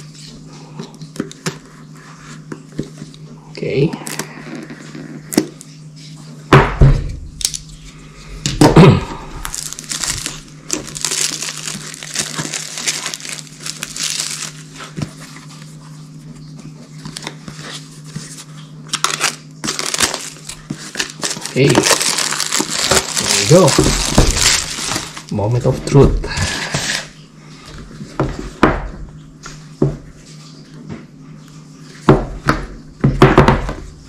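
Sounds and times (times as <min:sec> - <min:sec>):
shrink wrap crinkling: 0:09.4 - 0:15.8, 0:17.0 - 0:27.2.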